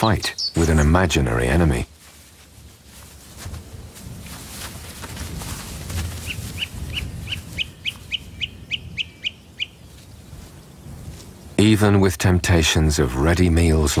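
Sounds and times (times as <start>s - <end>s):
bird chirping: 0.0s - 1.2s, 6.2s - 10.1s.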